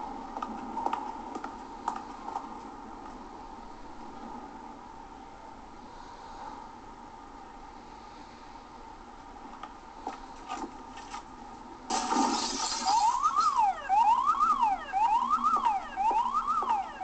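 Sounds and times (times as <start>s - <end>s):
loud crash: 11.9s - 13.5s
electronic alarm siren wailing: 12.6s - 17.0s.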